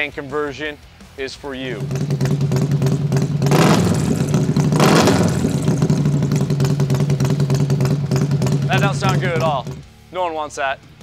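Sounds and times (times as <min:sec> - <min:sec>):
motorcycle engine idling: 0:01.6 - 0:10.2
motorcycle throttle blips: 0:01.8 - 0:09.9.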